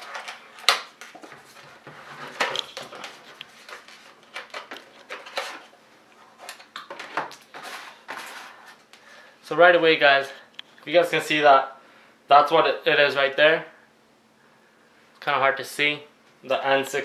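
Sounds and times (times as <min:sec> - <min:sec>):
cardboard sleeve scraping and rustling: 0:00.0 - 0:06.5, 0:07.4 - 0:08.9.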